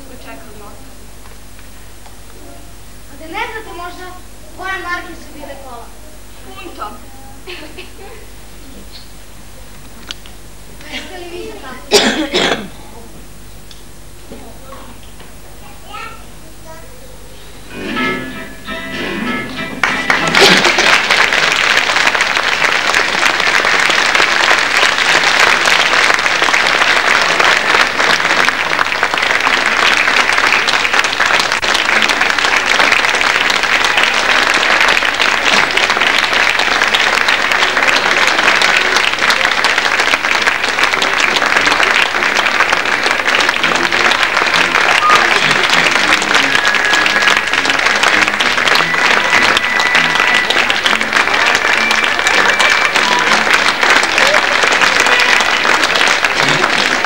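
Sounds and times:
audience applauding: 17.7 - 57.0.

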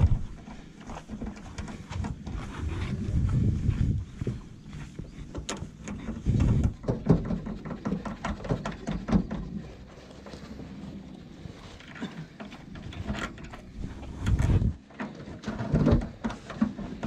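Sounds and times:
sleeve rubbing on microphone: 1.8 - 5.3, 13.7 - 14.8
cables and metal terminals clicking: 11.6 - 17.0.

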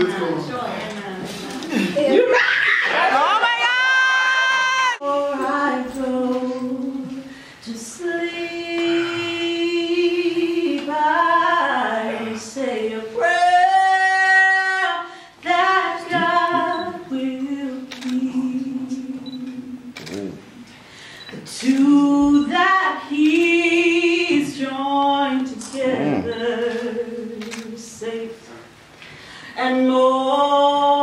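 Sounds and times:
woman singing a slow song: 4.8 - 20.1, 21.4 - 28.7, 29.4 - 31.0.

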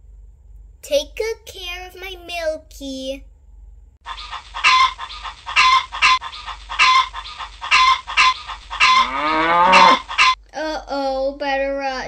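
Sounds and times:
hens clucking: 4.0 - 10.4.

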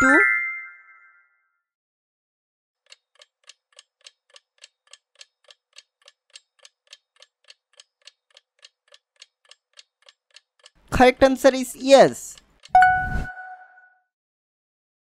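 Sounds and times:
countdown timer ticking: 12.0 - 13.8.

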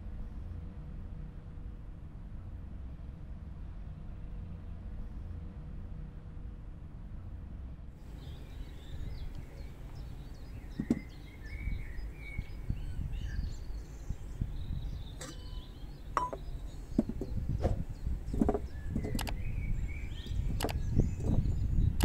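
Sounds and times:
low rumble: 0.0 - 22.0
birds chirping: 8.0 - 22.0
knocks on wooden board: 10.8 - 11.1.

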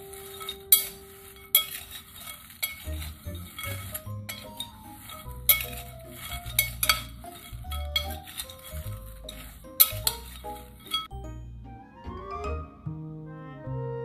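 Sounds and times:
crunchy pasta rustling: 0.0 - 11.1
spoon clinking on glass: 0.0 - 11.2.

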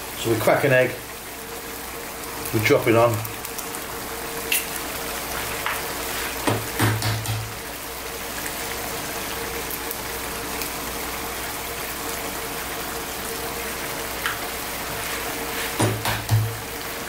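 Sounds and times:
sauce simmering in a pan: 0.0 - 17.0.

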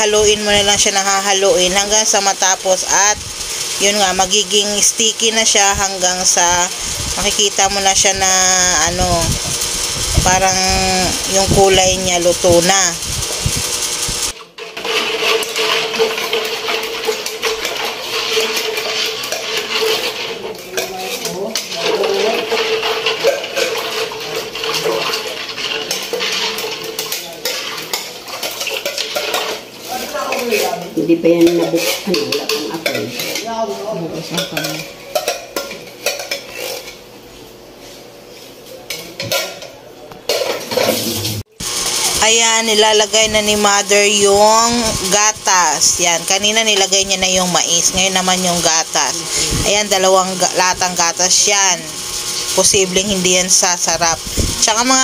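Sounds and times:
steady hum: 0.0 - 14.4
spoon scraping metal pan: 0.9 - 37.0.

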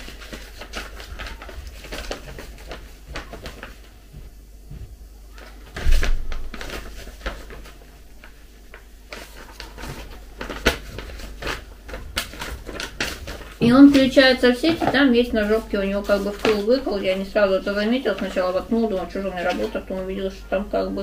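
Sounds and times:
paper leaflet rustling and crackling: 0.0 - 4.1, 5.3 - 20.9
paper snapping: 8.7 - 14.1.

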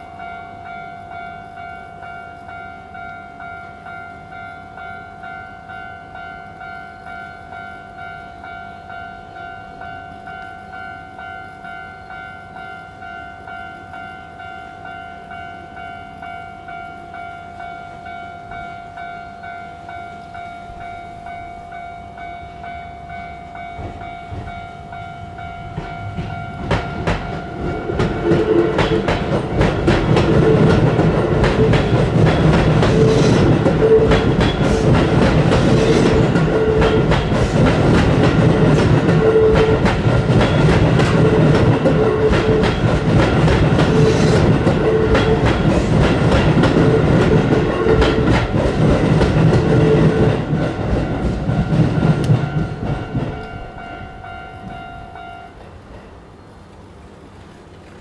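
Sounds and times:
train wheels clacking: 23.1 - 56.2.

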